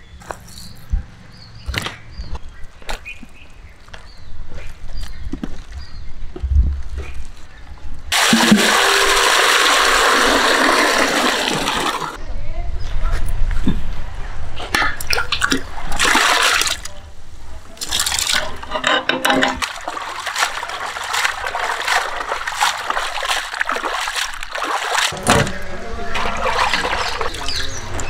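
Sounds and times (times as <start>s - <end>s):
water splashing in a vessel: 8.1s - 12.2s, 15.1s - 17.0s, 17.8s - 18.6s, 19.4s - 28.0s.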